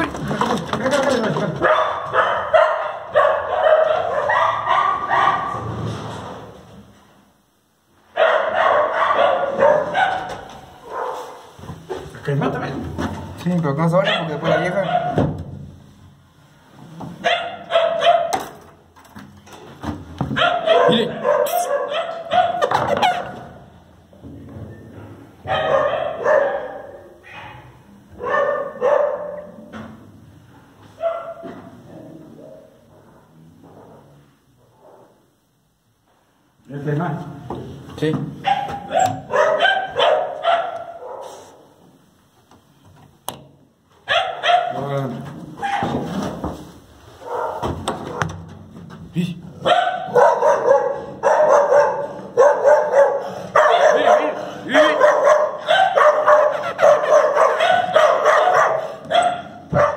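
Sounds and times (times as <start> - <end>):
dog barking: 1.6 - 5.6, 8.1 - 11.5, 14.0 - 15.2, 17.2 - 18.6, 20.3 - 23.6, 25.4 - 29.6, 31.0 - 31.7, 38.4 - 41.7, 44.0 - 44.8, 45.6 - 46.0, 47.2 - 48.4, 49.6 - 59.9.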